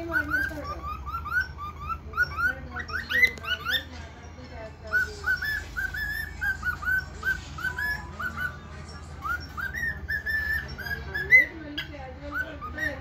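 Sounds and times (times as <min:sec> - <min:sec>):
cockatiel whistling: 0:00.0 - 0:03.9, 0:04.9 - 0:13.0.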